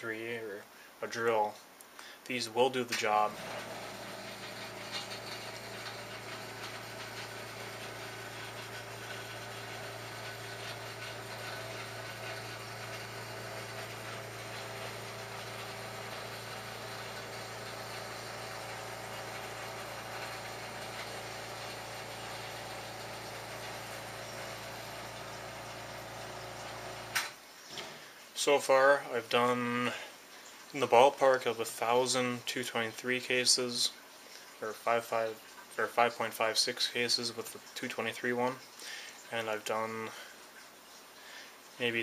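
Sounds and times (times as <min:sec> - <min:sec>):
electric drill motor running: 0:03.2 - 0:27.4.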